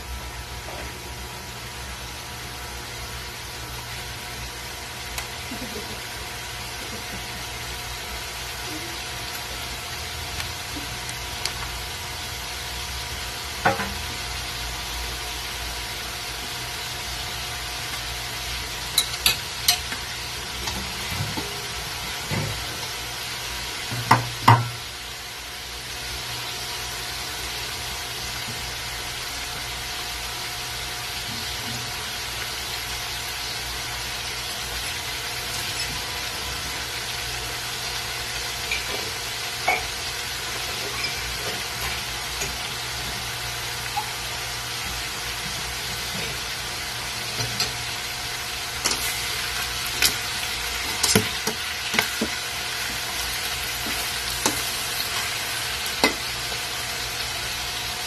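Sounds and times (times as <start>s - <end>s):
meat sizzling in a wok: 0.0s - 58.0s
metal spatula scraping wok: 40.7s - 41.6s.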